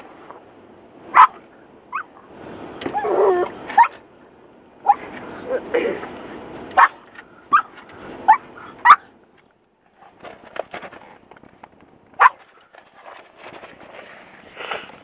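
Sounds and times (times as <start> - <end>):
dog yapping: 1.1 - 2.2, 2.8 - 4.0, 4.8 - 5.1, 6.7 - 9.1, 12.2 - 12.5.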